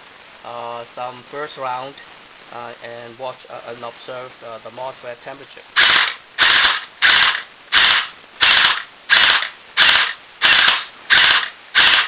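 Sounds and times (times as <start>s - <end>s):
airsoft gun firing bursts: 5.8s - 12.0s.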